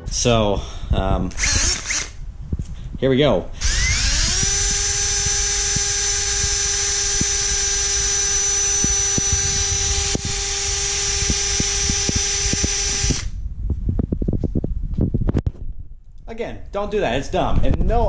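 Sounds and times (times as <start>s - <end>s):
drill boring into rubber: 1.3s - 2.2s, 3.6s - 13.4s.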